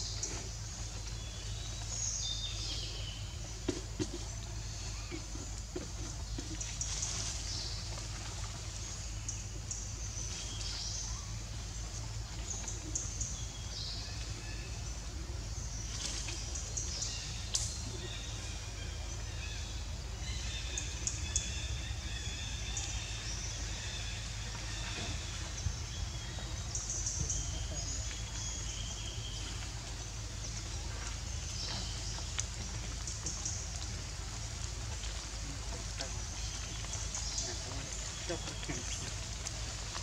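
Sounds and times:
steady low hum: 0.0s - 40.0s
birds chirping: 11.9s - 40.0s.

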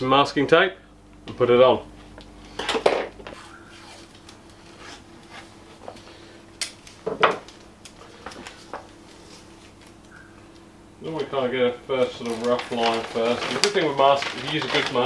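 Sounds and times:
faint steady hum: 0.0s - 15.0s
paper rustling: 12.0s - 15.0s.

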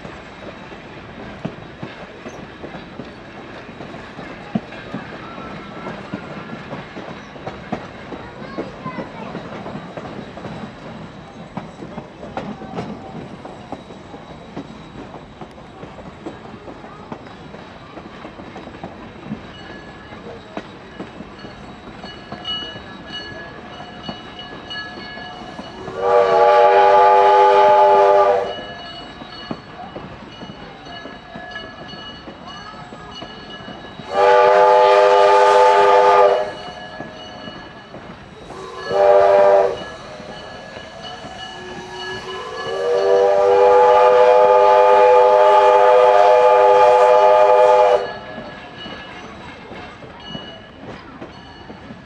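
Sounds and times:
train running noise: 0.0s - 52.0s
steam locomotive whistle: 25.4s - 28.8s, 34.0s - 37.2s, 38.4s - 48.4s.

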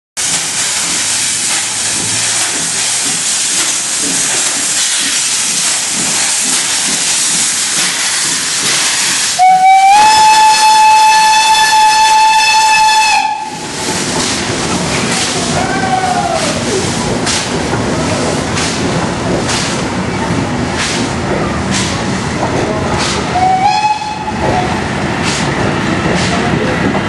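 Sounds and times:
steam hissing: 0.2s - 27.0s
steam locomotive chuffing: 0.2s - 27.0s
steam whistle: 9.4s - 13.6s, 23.3s - 24.4s.

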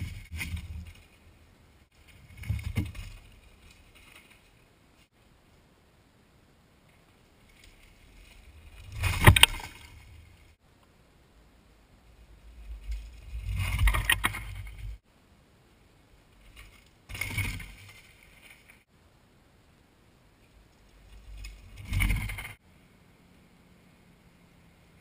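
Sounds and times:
bike tyres rolling over dirt: 0.0s - 5.7s, 6.7s - 10.7s, 11.7s - 15.1s, 16.2s - 18.9s, 20.3s - 22.6s.

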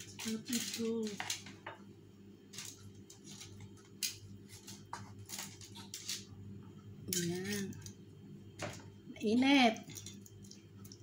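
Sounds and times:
aluminium foil crinkling: 0.0s - 1.6s, 2.5s - 6.3s.

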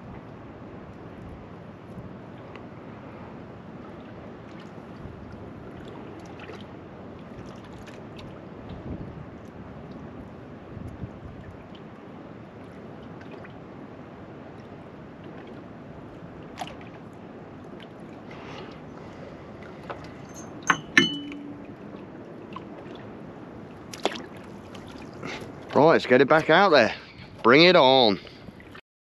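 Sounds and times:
water and breeze around boat: 0.0s - 28.8s
metallic clinks with ringing: 20.2s - 21.6s.

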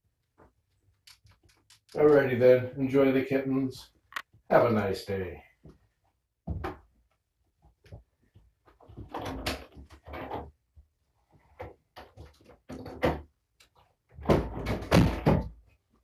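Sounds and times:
knocks and bumps: 6.4s - 7.1s, 7.7s - 10.6s, 14.1s - 15.7s.

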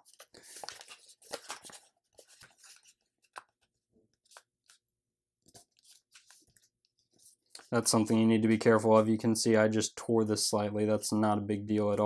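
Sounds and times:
paper crinkling and crackling: 0.0s - 4.8s.

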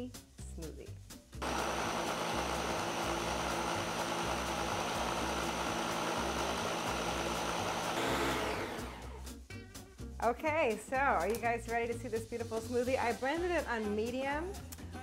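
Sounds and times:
blender motor running: 1.4s - 9.2s.

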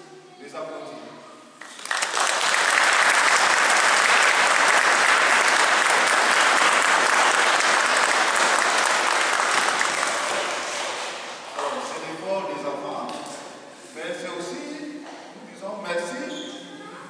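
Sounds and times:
congregation applauding: 1.6s - 11.9s.

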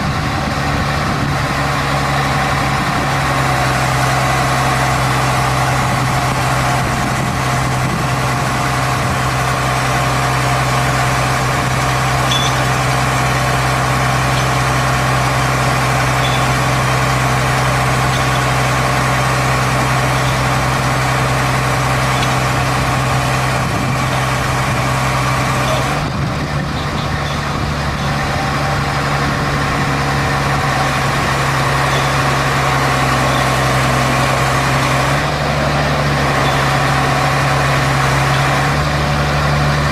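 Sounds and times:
diesel engine droning: 0.0s - 39.9s.

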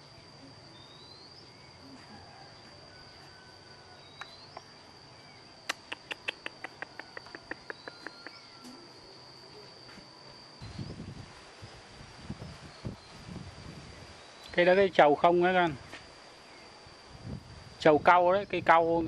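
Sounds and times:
insects shrilling: 0.0s - 19.0s.

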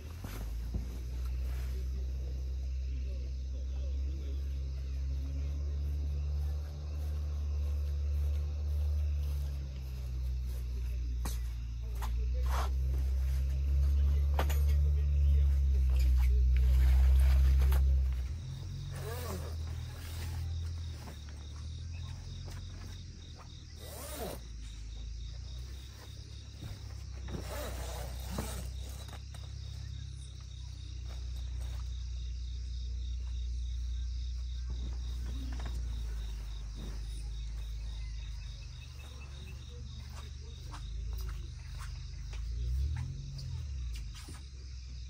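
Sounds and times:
mesh and poles rustling: 0.0s - 3.0s, 3.7s - 32.3s, 34.5s - 44.7s
insects chirping: 0.0s - 45.0s.

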